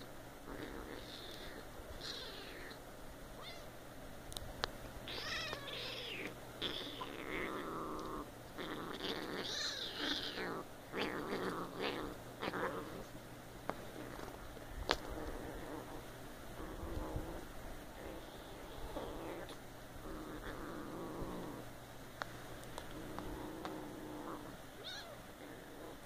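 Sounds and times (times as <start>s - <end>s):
kittens meowing and squealing: 0.8s - 2.8s, 3.4s - 3.8s, 5.1s - 7.6s, 9.1s - 13.0s, 24.8s - 25.3s.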